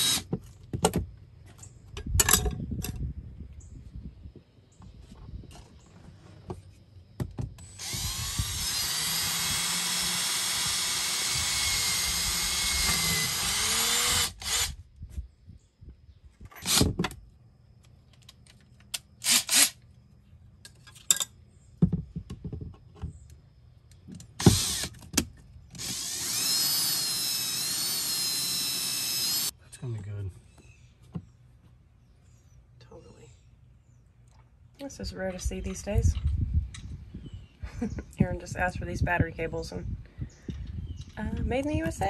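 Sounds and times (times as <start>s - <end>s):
power drill whining: 0.0s - 0.3s, 7.6s - 14.8s, 24.4s - 25.0s, 25.7s - 29.5s.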